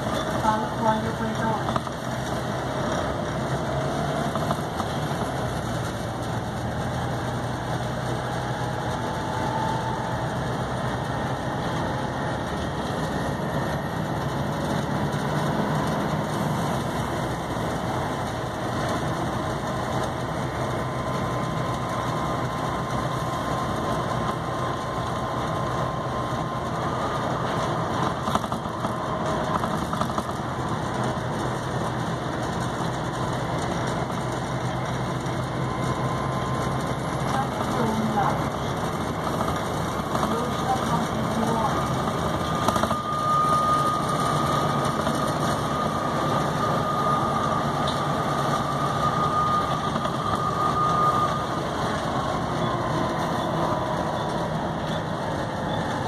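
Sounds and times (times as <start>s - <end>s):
bus diesel engine running: 0.0s - 56.0s
faint whine: 0.0s - 56.0s.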